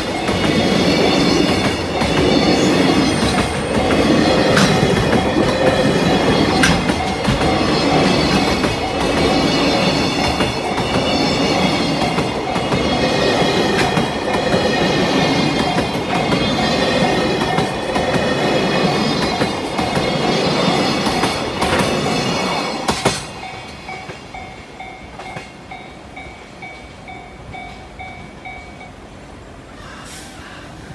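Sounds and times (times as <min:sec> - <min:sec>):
high ringing wheel squeal: 0:00.0 - 0:04.6
crossing alarm ringing: 0:00.0 - 0:29.2
train wheels rumbling and clattering: 0:00.0 - 0:29.2.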